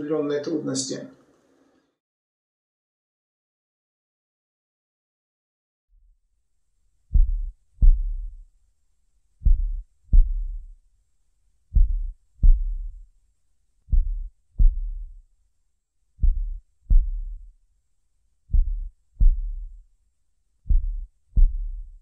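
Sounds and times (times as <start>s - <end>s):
heartbeat thuds: 7.1s - 8.5s, 9.4s - 10.8s, 11.7s - 13.1s, 13.9s - 15.2s, 16.2s - 17.6s, 18.5s - 19.9s, 20.6s - 22.0s.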